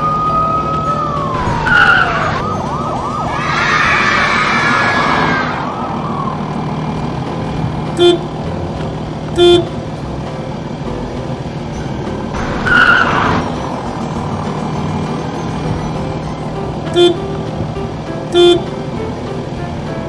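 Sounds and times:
truck engine running: 0:00.0 - 0:20.0
truck horn toots: 0:06.9 - 0:10.0, 0:12.4 - 0:19.2.

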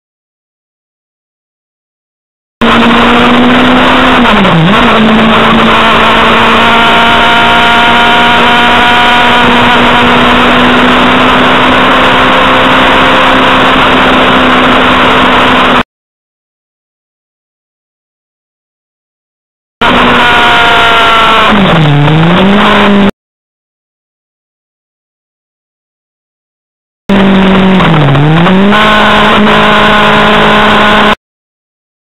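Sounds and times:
motorcycle engine at high revs: 0:02.6 - 0:15.8, 0:19.8 - 0:23.1, 0:27.1 - 0:31.2.

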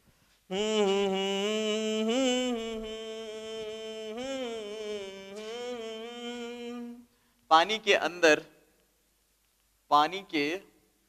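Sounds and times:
man holding long sung note: 0:00.5 - 0:07.2.

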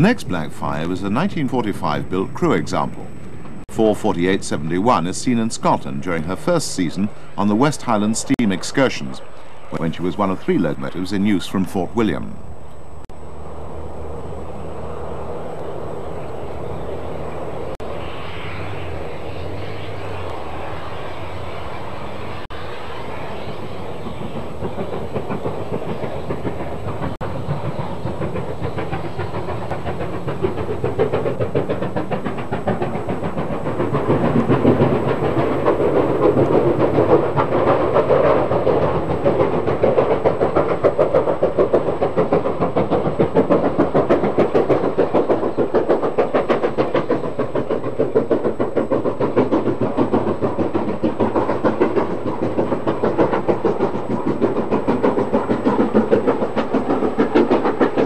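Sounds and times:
steam locomotive exhaust beating: 0:00.0 - 0:58.0.

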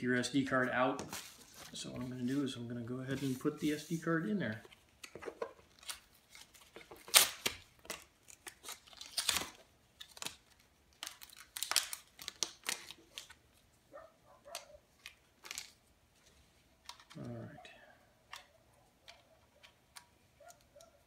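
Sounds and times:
packaging being torn open: 0:05.7 - 0:13.4, 0:14.5 - 0:15.8.

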